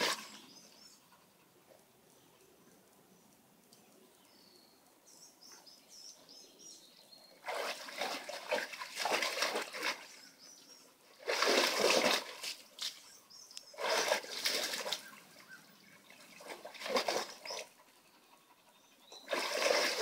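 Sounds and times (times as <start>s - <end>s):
dog splashing water with paws: 7.4s - 10.2s, 11.2s - 13.0s, 13.8s - 15.2s, 16.3s - 17.7s, 19.2s - 20.0s.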